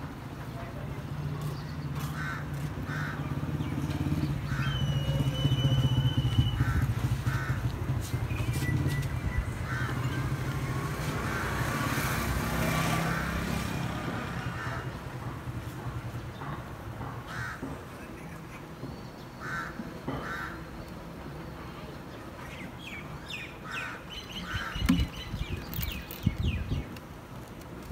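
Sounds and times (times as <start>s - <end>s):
crows cawing: 2.0s - 3.3s, 4.4s - 4.8s, 6.5s - 7.8s, 9.6s - 10.2s, 14.4s - 15.2s, 17.2s - 17.9s, 19.4s - 20.7s, 23.6s - 25.1s
engine running: 2.6s - 17.3s.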